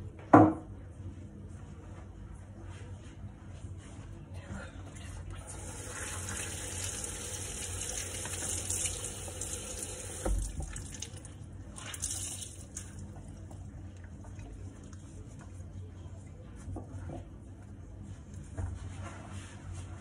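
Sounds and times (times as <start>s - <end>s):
dull knock against sink: 0.3s - 0.6s
tap running into sink: 7.6s - 11.2s.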